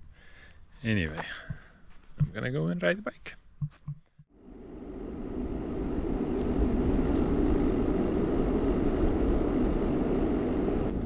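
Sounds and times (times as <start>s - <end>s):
wind rushing over microphone: 4.3s - 11.0s.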